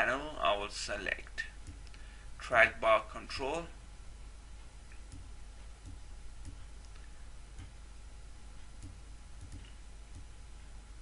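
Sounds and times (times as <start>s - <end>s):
low hum and hiss: 0.0s - 11.0s
faint mouse clicks: 8.8s - 10.3s.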